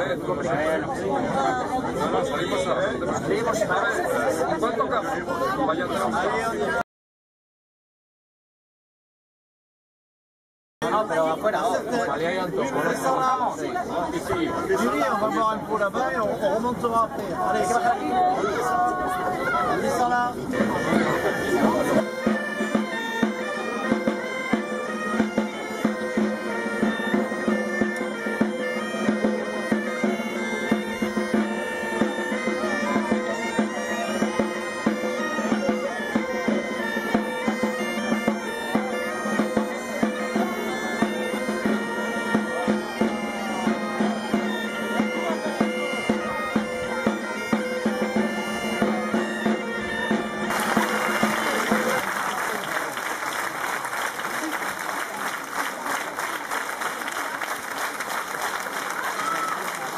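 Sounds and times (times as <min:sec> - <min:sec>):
bagpipes playing over a drone: 0:20.5 - 0:52.0
snare drum beating: 0:48.8 - 0:52.0.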